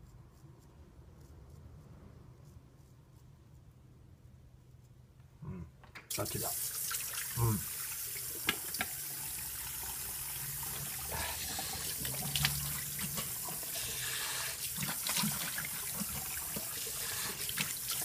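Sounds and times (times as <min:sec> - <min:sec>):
tap water running into sink: 0:06.1 - 0:18.0.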